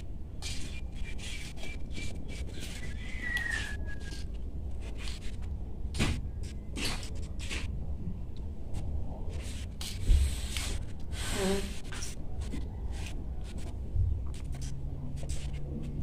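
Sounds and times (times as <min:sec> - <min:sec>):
steady low rumble: 0:04.3 - 0:16.0.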